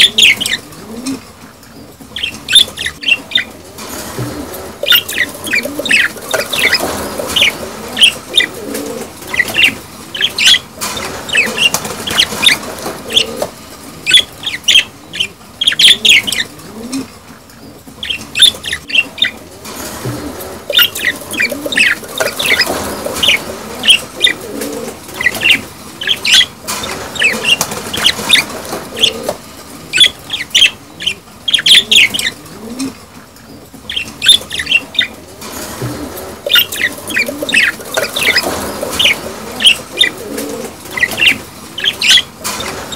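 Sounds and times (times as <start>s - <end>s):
budgerigars chattering: 0.0s - 0.6s, 2.1s - 3.6s, 4.8s - 8.6s, 9.2s - 16.5s, 18.0s - 19.4s, 20.7s - 24.5s, 25.1s - 32.4s, 33.9s - 35.1s, 36.4s - 42.9s.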